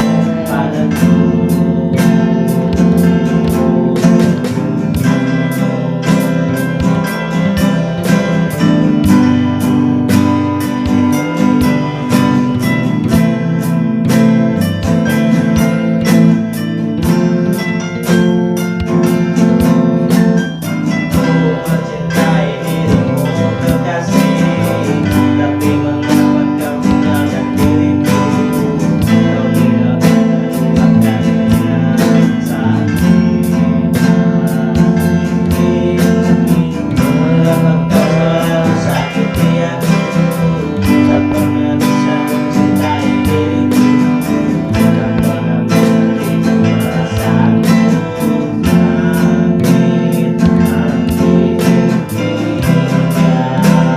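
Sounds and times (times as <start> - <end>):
acoustic guitar strumming: 0.0 - 53.9
man singing: 0.0 - 53.9.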